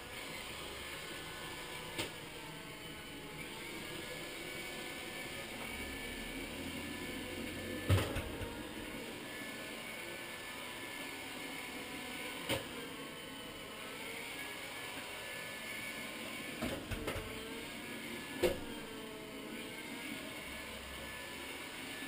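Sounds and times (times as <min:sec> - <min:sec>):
robotic floor scrubber motor whir: 0:00.0 - 0:22.0.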